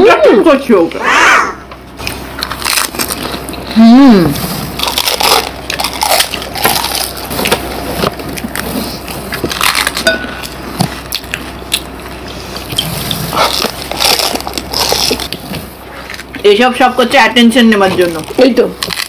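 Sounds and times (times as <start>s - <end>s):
crisp shells crunching: 2.4s - 3.6s, 4.8s - 7.7s, 8.4s - 11.9s, 12.8s - 16.3s, 18.1s - 19.0s.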